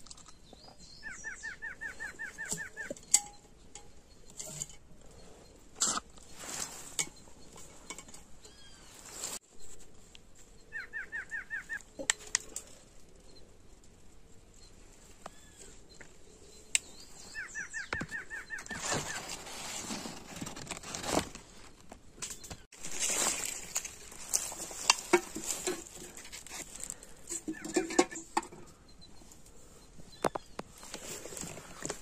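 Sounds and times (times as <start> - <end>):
rustling: 2.0 - 10.7, 18.1 - 32.0.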